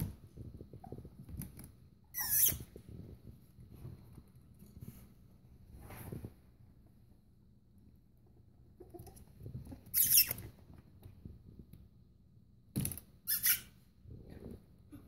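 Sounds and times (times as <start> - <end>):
puppy squeaking: 2.1 - 2.7, 9.9 - 10.5, 13.3 - 13.7.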